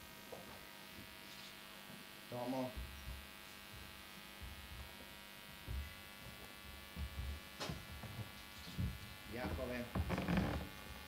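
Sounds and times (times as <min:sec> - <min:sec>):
electrical mains hum: 0:00.0 - 0:11.0
soft low thumps: 0:02.8 - 0:10.7.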